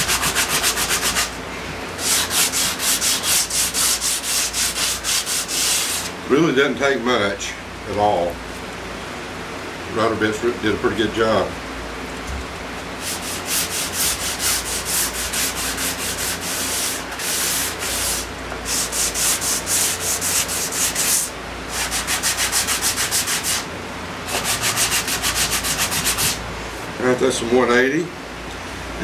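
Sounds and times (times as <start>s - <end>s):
sandpaper rasping on wood: 0.0s - 1.4s, 2.0s - 6.1s, 13.0s - 23.7s, 24.3s - 26.4s.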